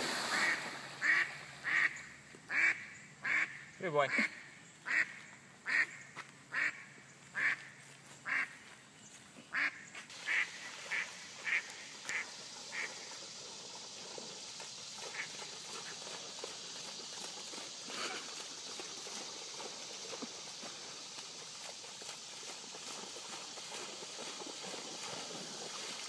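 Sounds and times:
faint steady hiss: 0.0 - 26.0
duck quacking: 0.3 - 5.9, 6.5 - 6.8, 7.4 - 8.5, 9.5 - 12.9.

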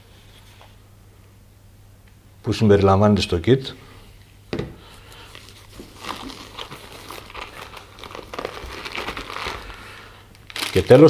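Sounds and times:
fabric case rustling and crinkling: 5.3 - 11.0.

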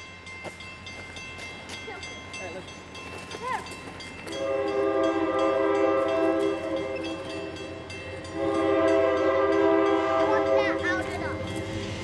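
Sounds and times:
locomotive air horn blast: 4.4 - 7.6, 8.3 - 10.8.

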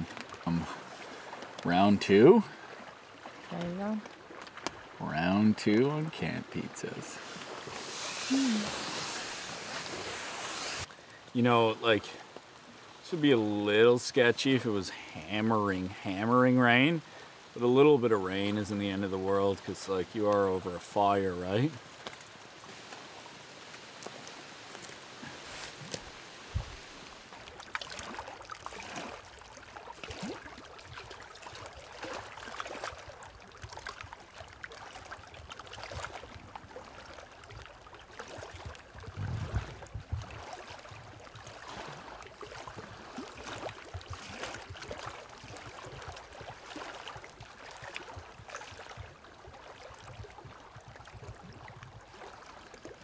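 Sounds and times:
light rain pattering: 0.0 - 2.6, 3.2 - 30.0
campfire crackling and popping: 18.5 - 28.6.

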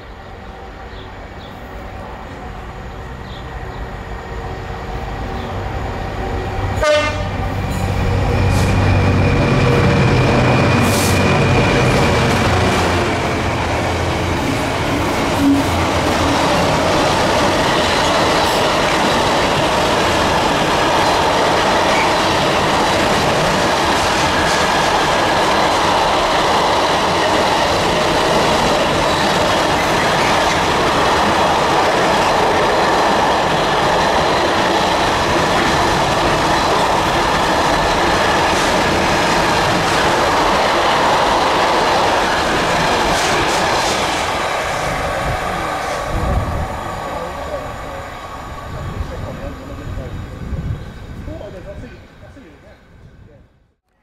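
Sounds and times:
diesel locomotive: 0.0 - 54.0
train wheels clattering on rail: 6.8 - 46.4.

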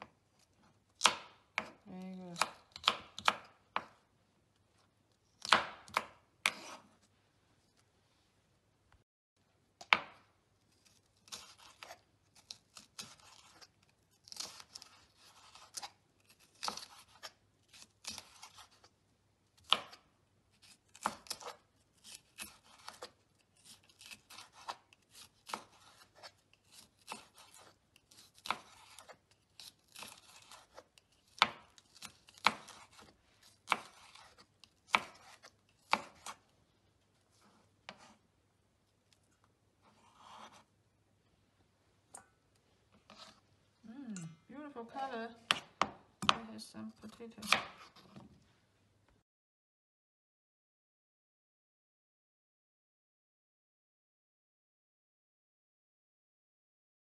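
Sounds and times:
knife slicing pepper: 1.0 - 4.0, 5.4 - 6.9, 10.8 - 18.9, 19.6 - 36.5, 37.3 - 38.2, 39.8 - 40.7, 43.0 - 43.4, 47.4 - 48.2.

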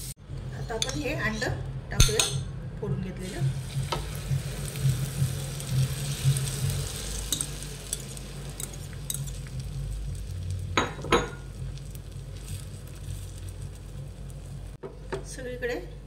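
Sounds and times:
egg sizzling in butter: 3.3 - 14.8
metal spoon scraping a pan: 6.0 - 9.6
spoon clinking: 7.3 - 9.5.

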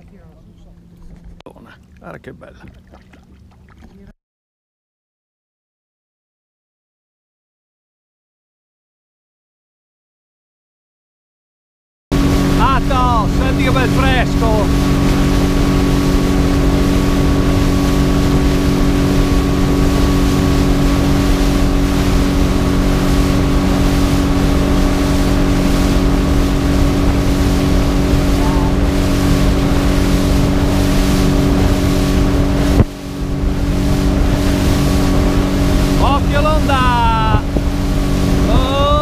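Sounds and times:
motorboat engine drone: 0.0 - 4.1, 12.1 - 39.0
wind on microphone: 12.2 - 39.0.

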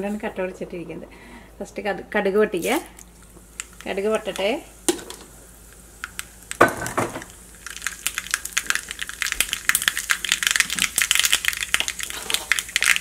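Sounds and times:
oil sizzling in a pan: 2.6 - 13.0
mustard seeds popping: 2.9 - 13.0.

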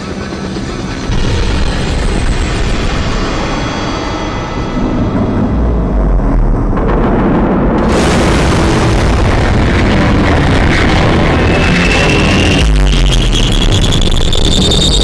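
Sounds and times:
explosion deep rumble and roar: 0.0 - 15.0
rising whine: 0.0 - 15.0.

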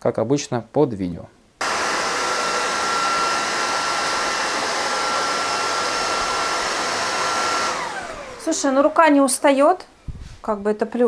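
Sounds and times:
high motor whine: 1.6 - 9.0
stick vacuum running: 1.6 - 9.1.

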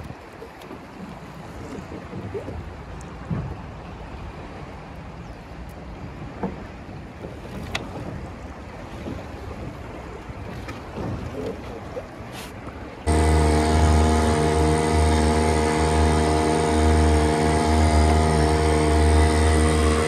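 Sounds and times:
river water rushing: 11.8 - 20.0.

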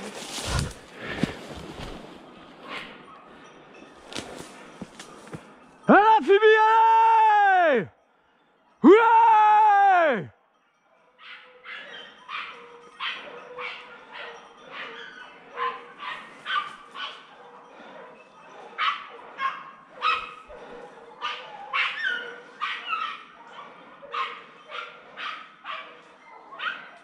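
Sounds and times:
dogs yelping barks: 10.9 - 27.0.

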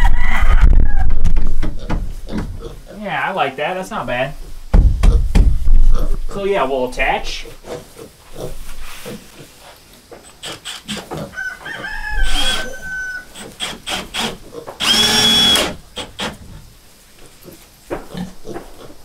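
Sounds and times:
rooster crowing: 0.0 - 1.3, 11.2 - 13.4
chickens clucking: 7.6 - 13.6
power drill driving screws: 10.5 - 11.0, 12.2 - 12.7, 13.4 - 16.4.

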